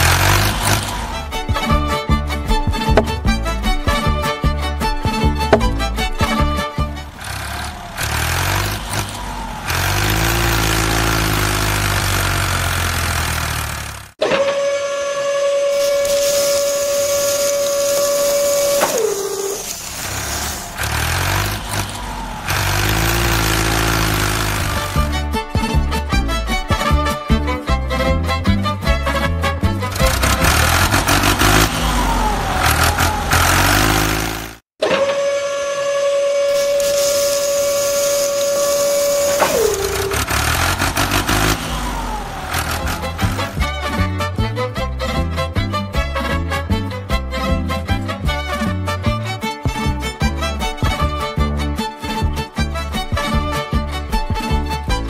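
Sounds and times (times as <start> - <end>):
low motor rumble: 0.0 - 14.2, 15.7 - 26.6, 27.9 - 34.7, 36.5 - 46.0
small electric motor whining: 7.2 - 25.1, 29.9 - 43.7
sand sliding with a hiss: 15.7 - 21.9, 36.5 - 41.6.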